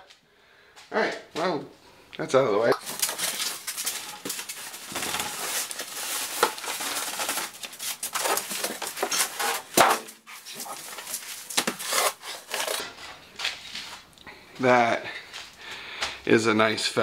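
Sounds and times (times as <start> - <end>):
styrofoam rubbing and squeaking: 2.8 - 12.8
plastic wrapping rustling: 2.8 - 14.1.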